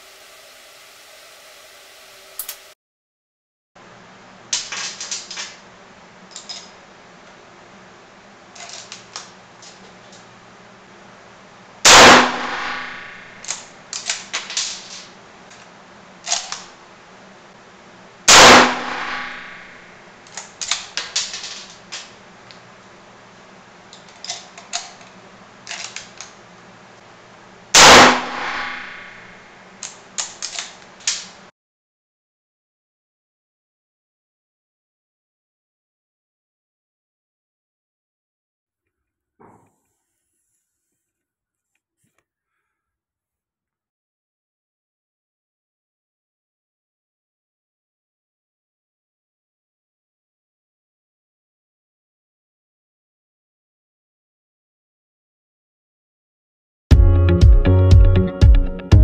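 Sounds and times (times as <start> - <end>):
rifle shots echoing: 11.9 - 13.2, 18.3 - 19.6, 27.8 - 29.2.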